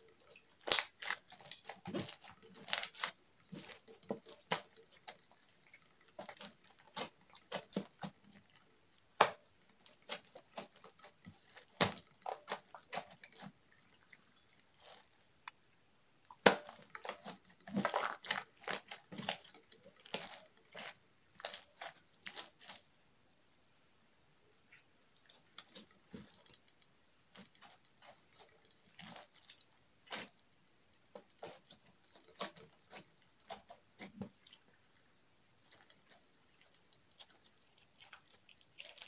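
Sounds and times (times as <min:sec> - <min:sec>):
slime squishing with crackling pops: 0:00.3 - 0:13.6, 0:16.2 - 0:22.9, 0:27.2 - 0:30.4, 0:31.1 - 0:34.8.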